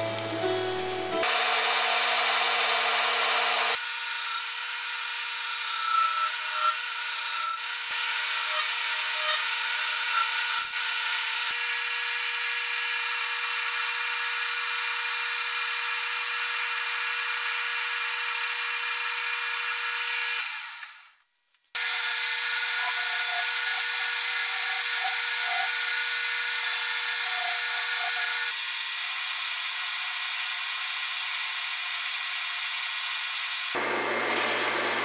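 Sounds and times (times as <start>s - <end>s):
cutting tool squeals: 5.4s - 10.8s, 22.7s - 25.9s, 26.6s - 28.5s.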